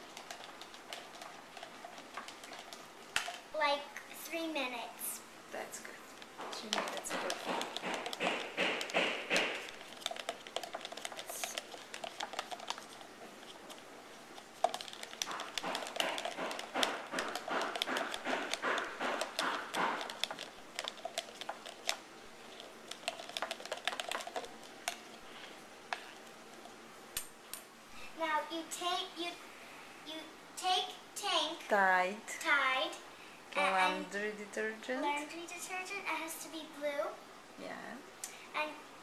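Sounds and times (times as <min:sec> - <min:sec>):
utensil scraping and clicking in cup: 0:00.0 - 0:03.4, 0:06.2 - 0:13.8, 0:14.4 - 0:25.3.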